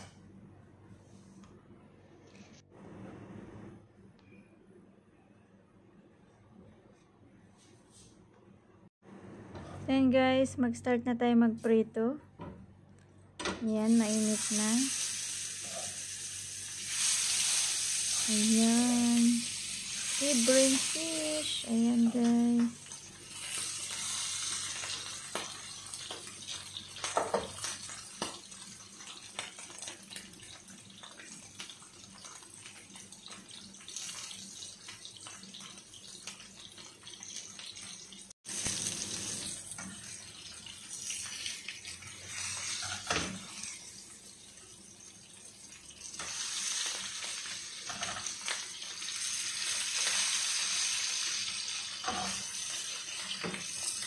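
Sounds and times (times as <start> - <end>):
fish sizzling in hot oil: 13.8 - 54.0.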